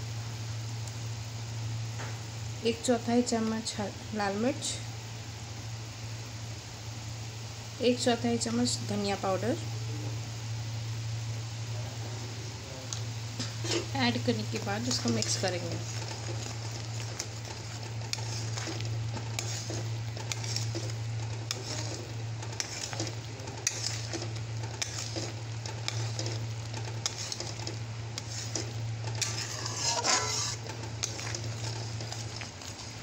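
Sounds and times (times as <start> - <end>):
steady low hum: 0.0 - 33.0
paste sizzling and bubbling: 12.6 - 33.0
metal spatula scraping a pan: 13.6 - 33.0.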